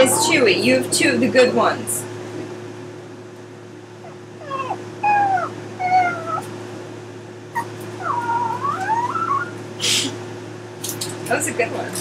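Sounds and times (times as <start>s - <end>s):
small dog whining: 4.0s - 6.5s, 7.5s - 9.6s.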